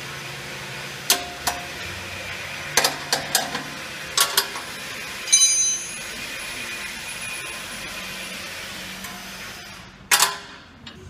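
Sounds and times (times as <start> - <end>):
spanner clinking on metal: 5.3 - 6.0
ringing metal clang: 5.3 - 6.1.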